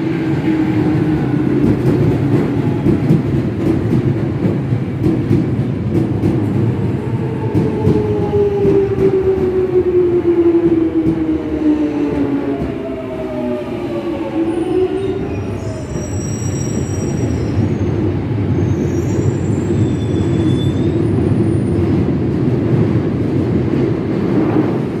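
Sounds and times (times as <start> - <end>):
wheels rumbling on rail: 0.0 - 25.0
faint high squeal: 14.9 - 17.9, 18.6 - 20.9.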